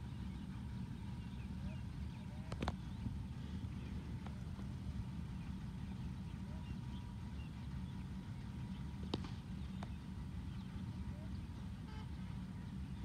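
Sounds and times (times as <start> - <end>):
low engine-like rumble: 0.0 - 13.0.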